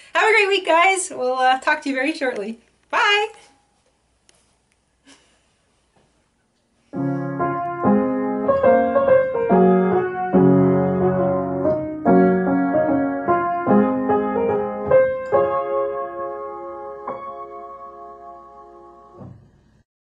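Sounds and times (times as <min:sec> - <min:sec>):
piano melody over chords: 0:07.0 - 0:19.4.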